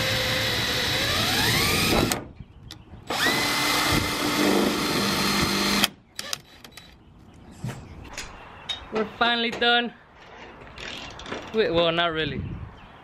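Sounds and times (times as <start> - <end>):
cordless drill boring through metal: 0.0 - 2.2, 3.1 - 6.4.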